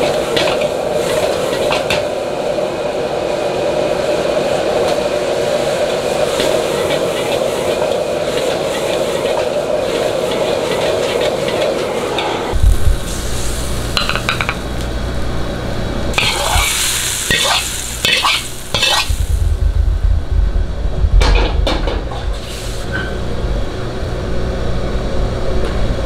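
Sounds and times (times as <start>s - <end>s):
food sizzling: 0.0s - 2.2s, 5.4s - 20.0s, 21.6s - 23.3s
gas burner roaring: 0.0s - 26.0s
spatula scraping a wok: 6.4s - 12.3s, 16.2s - 19.2s.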